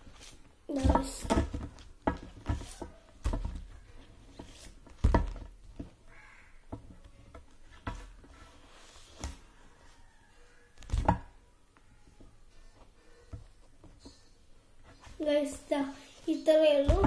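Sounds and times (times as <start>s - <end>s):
books knocking and thumping: 0.1s - 6.1s, 6.7s - 9.6s, 10.8s - 11.4s, 16.8s - 17.0s.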